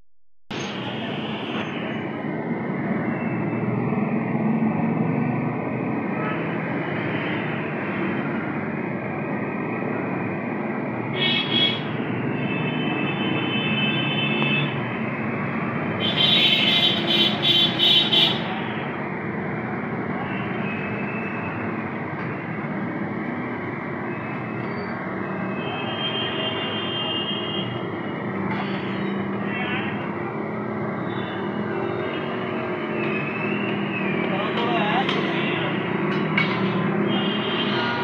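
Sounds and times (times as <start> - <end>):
traffic noise: 0.5 - 38.0
vehicle horns: 11.1 - 14.8, 37.0 - 38.0.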